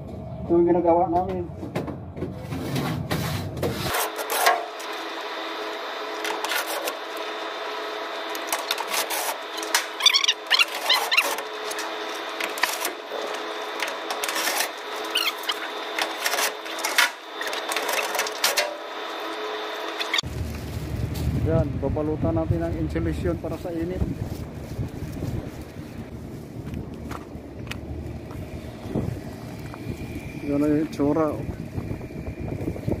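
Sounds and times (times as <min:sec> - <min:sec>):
steady hum: 0:00.0 - 0:33.0
high chirping: 0:10.0 - 0:11.4.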